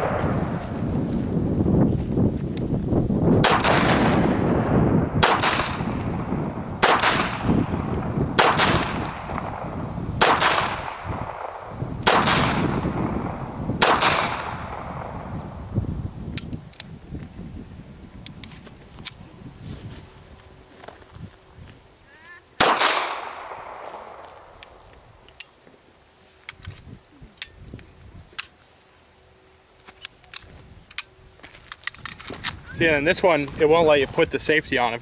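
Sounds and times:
pistol shots with echo: 0.0s - 0.7s, 3.4s - 15.3s, 22.6s - 24.3s.

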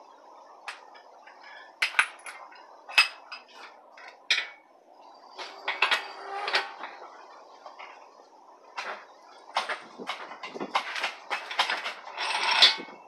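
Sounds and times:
metal tools clinking and clanking: 0.7s - 4.6s, 5.4s - 7.0s, 8.8s - 13.0s.

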